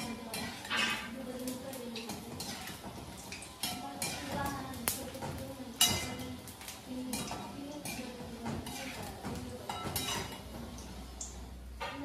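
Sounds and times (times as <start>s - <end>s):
metal ladle clinking on pan: 0.0s - 1.2s, 1.9s - 6.3s, 7.1s - 10.5s
food frying: 0.0s - 12.0s.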